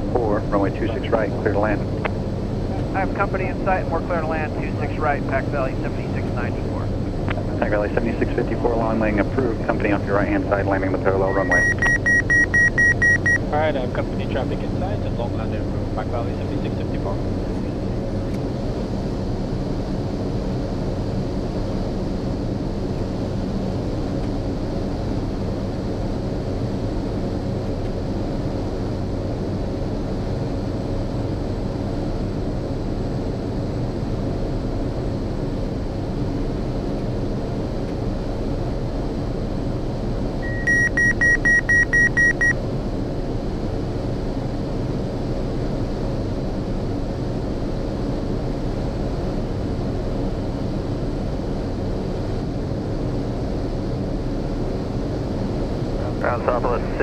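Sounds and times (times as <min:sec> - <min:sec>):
turboprop cabin drone: 0:00.0 - 0:57.0
cockpit alert beeps: 0:11.3 - 0:13.4, 0:40.4 - 0:42.6.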